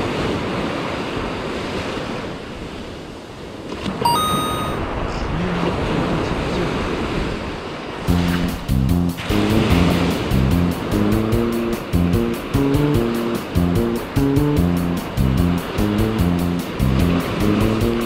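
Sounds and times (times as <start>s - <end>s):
surf washing up beach: 0.0s - 18.0s
short bright chime: 4.0s - 4.9s
music with steady beat: 8.1s - 18.0s.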